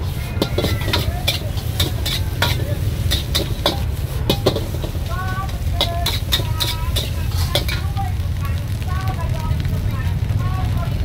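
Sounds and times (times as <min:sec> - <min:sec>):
metal spatula scraping wok: 0:00.0 - 0:08.3
steady low rumble: 0:00.0 - 0:11.0.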